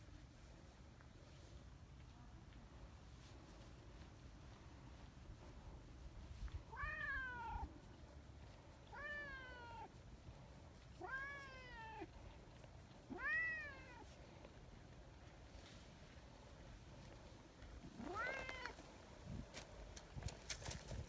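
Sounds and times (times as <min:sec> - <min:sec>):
cat meowing: 0:06.7 - 0:07.7, 0:08.9 - 0:09.9, 0:11.0 - 0:12.1, 0:13.1 - 0:14.0, 0:18.0 - 0:18.8.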